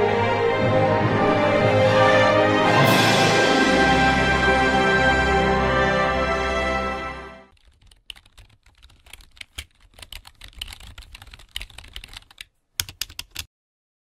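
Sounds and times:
intro music: 0.0 - 7.5
keyboard typing clicks: 7.5 - 13.5.

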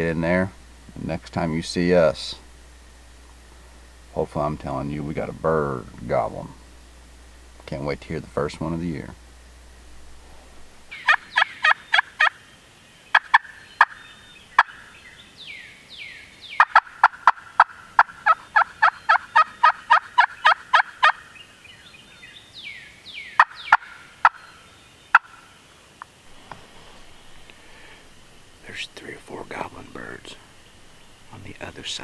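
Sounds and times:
turkey yelping: 10.9 - 12.4, 13.1 - 15.0, 16.6 - 21.4, 23.2 - 25.5.

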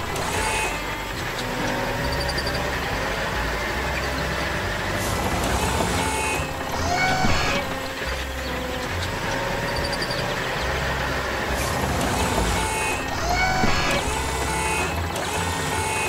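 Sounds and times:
tractor engine running: 0.0 - 16.0.

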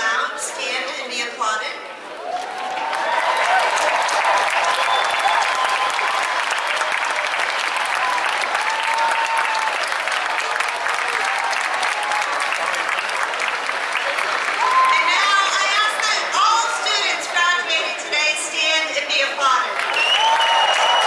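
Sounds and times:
crowd applauding: 2.0 - 17.1, 19.6 - 21.0
people cheering: 2.1 - 17.3, 19.7 - 21.0.

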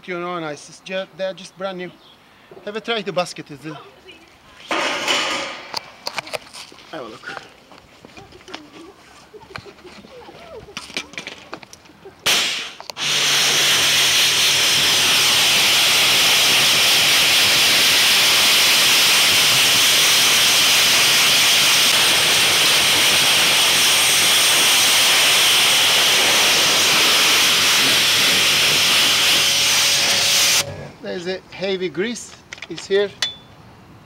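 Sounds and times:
pressure washer jet hissing: 12.3 - 30.7.

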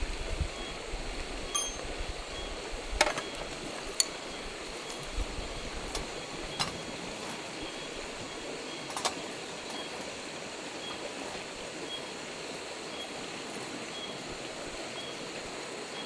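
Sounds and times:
twigs clicking against metal stove: 3.0 - 4.2.

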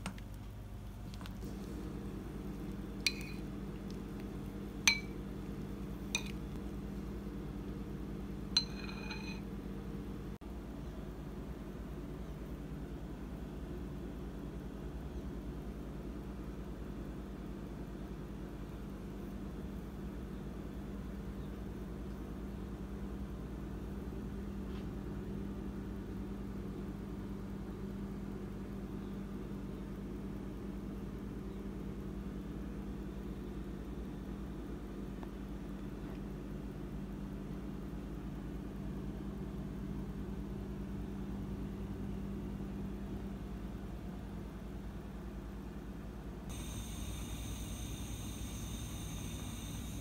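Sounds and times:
steady low hum: 0.0 - 50.0
metal spoon clinking ceramic bowl: 3.1 - 3.5, 4.9 - 5.2, 6.2 - 6.4, 8.6 - 9.5.

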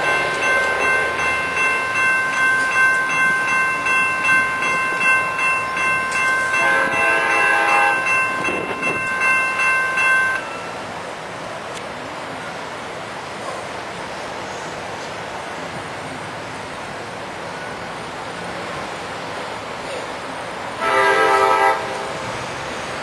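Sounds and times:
railroad crossing bell ringing: 0.0 - 11.3, 20.8 - 22.4
passenger train passing: 0.0 - 23.0
traffic noise: 0.0 - 23.0
train horn: 6.4 - 8.2, 20.8 - 22.3.

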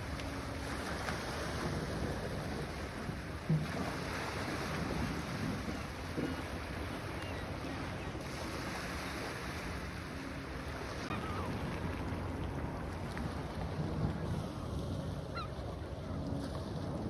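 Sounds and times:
wind on microphone: 0.0 - 10.1, 10.8 - 17.0
waves washing onto shore: 0.0 - 17.0
faint gull calls: 11.0 - 11.6, 15.2 - 15.8.

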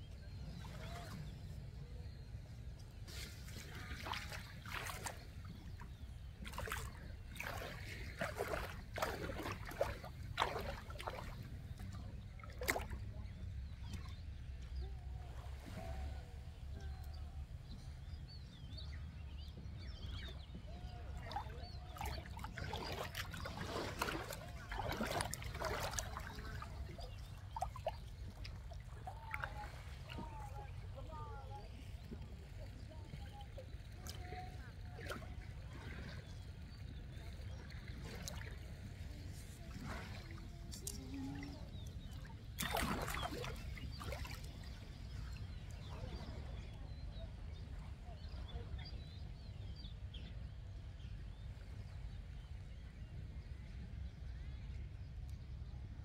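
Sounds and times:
water sloshing and splashing: 3.0 - 16.2, 19.9 - 47.0.

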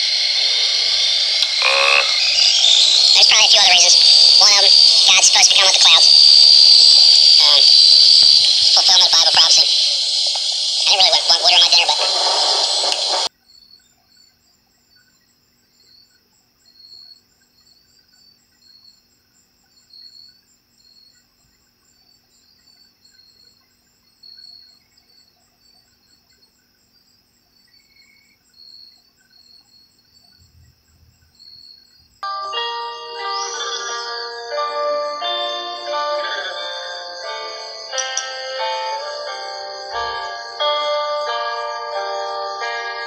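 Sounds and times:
crickets chirping: 0.0 - 43.0
loud voice: 10.8 - 12.4.

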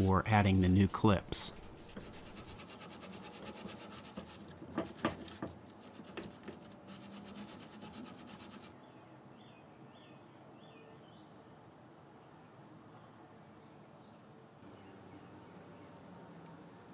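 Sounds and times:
wire brush scrubbing metal: 0.0 - 8.7.

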